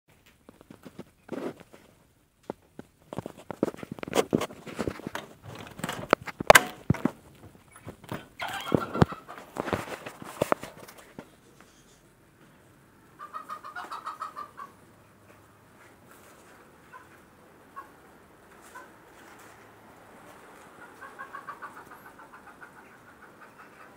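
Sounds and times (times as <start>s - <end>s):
knocks and rustling: 0.1s - 11.4s.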